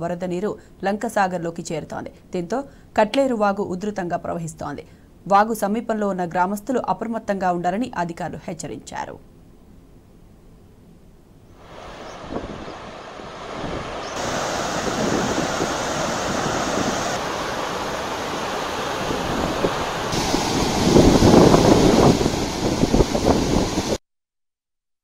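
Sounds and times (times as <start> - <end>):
water rushing over spillway: 11.6 - 24.0
wind buffeting microphone: 11.6 - 24.0.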